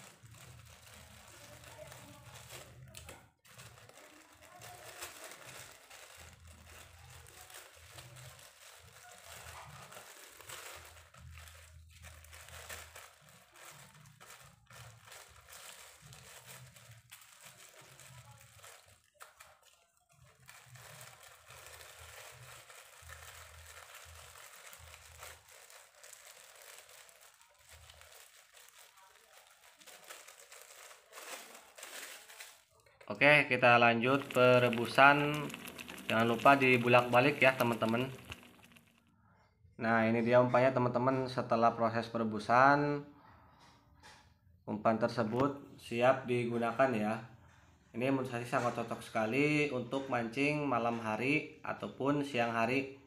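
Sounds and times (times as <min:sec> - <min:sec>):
plastic bag crinkling: 0:00.0 - 0:39.1.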